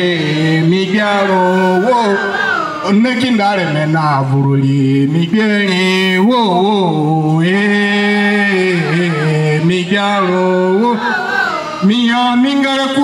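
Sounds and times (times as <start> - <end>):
person singing chant-like melody: 0.0 - 13.0.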